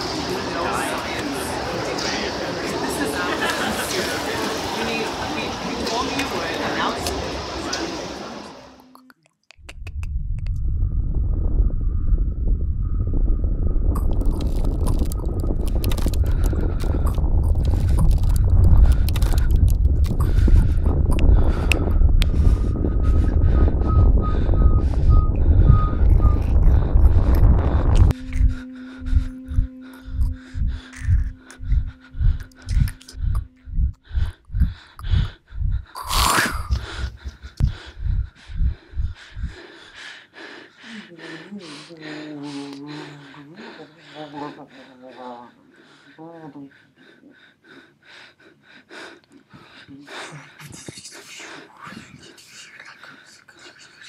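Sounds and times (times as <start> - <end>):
deep steady rumble: 9.7 - 40.0
steady hum: 9.9 - 40.6
deep thumps: 10.1 - 39.6
loud rush of noise: 10.7 - 33.5
wet crackling and squishing: 13.9 - 22.4, 26.0 - 39.6.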